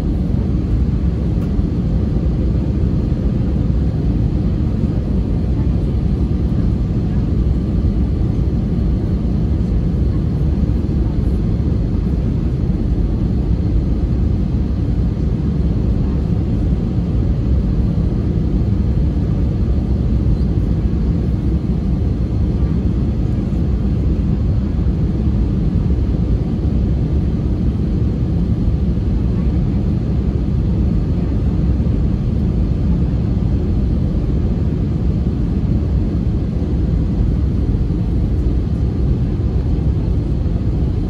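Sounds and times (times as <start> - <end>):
aircraft cabin engine rumble: 0.0 - 41.0.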